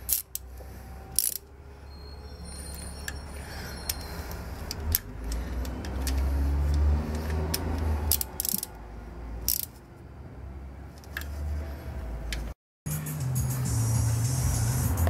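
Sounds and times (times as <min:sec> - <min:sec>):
ratchet clicking: 0:00.0 - 0:00.4, 0:01.1 - 0:01.4, 0:04.6 - 0:08.8, 0:09.4 - 0:09.8.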